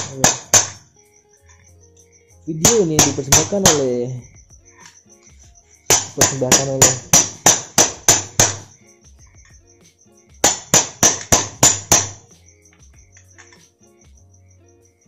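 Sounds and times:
hammer striking metal wrench: 0:00.0 - 0:00.8, 0:10.4 - 0:12.2.

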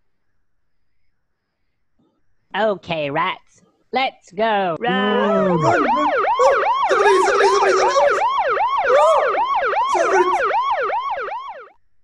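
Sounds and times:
cartoon police siren wail: 0:04.9 - 0:11.8.

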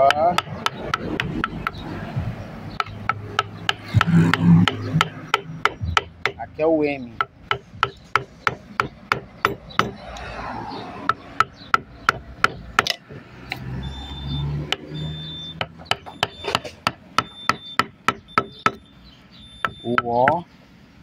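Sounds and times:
chisel struck cutting wood: 0:00.0 - 0:06.5, 0:07.2 - 0:10.2, 0:11.0 - 0:13.7, 0:14.6 - 0:15.0, 0:15.6 - 0:18.8.

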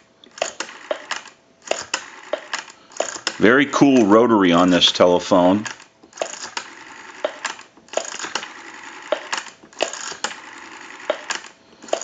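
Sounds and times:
rotary telephone dial whirring: 0:00.3 - 0:03.5, 0:05.6 - 0:12.0.

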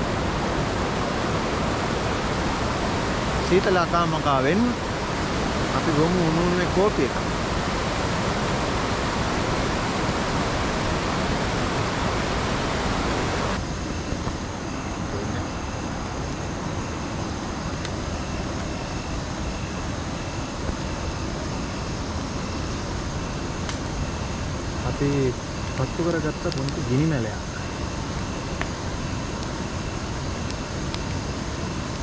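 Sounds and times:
softer rushing water: 0:00.0 - 0:13.6
waterfall rushing: 0:00.0 - 0:13.6
insect chirping: 0:00.0 - 0:32.0.

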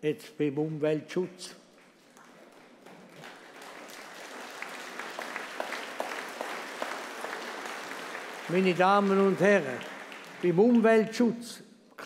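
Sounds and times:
audience applauding: 0:01.8 - 0:11.1.

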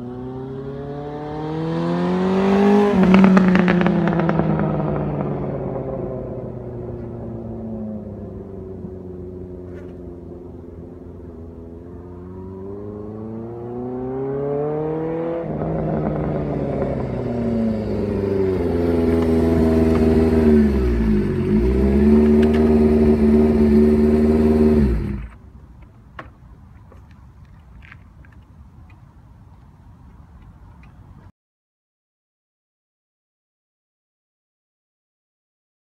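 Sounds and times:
motorcycle engine accelerating: 0:00.0 - 0:25.4.

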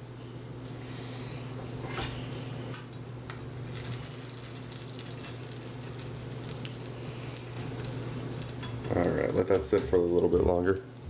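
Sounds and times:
steady low hum: 0:00.0 - 0:11.0
batter sizzling in frying pan: 0:03.4 - 0:11.0.

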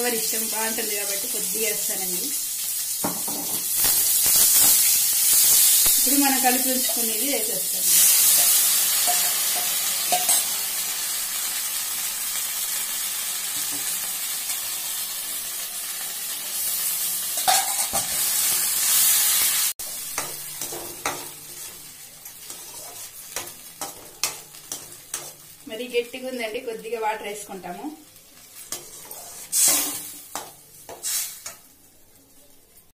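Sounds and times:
sauce sizzling in a wok: 0:00.0 - 0:32.9
metal skimmer scraping a wok: 0:22.4 - 0:25.4, 0:28.7 - 0:31.6.

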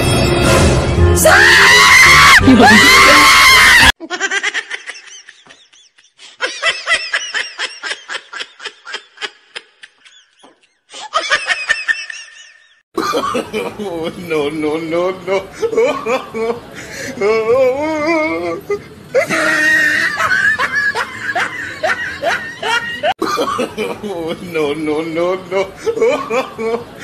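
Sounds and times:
music: 0:00.0 - 0:01.4
high-pitched human scream: 0:01.2 - 0:04.0.

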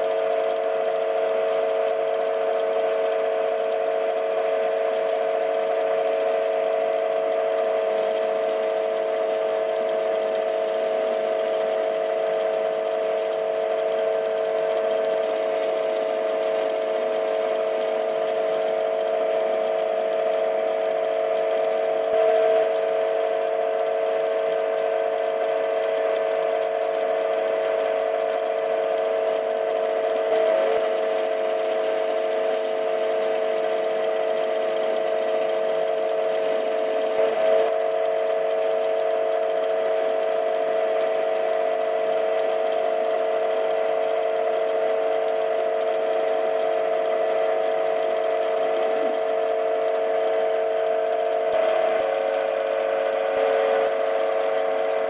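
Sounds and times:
metal lathe whining: 0:00.0 - 0:55.0.

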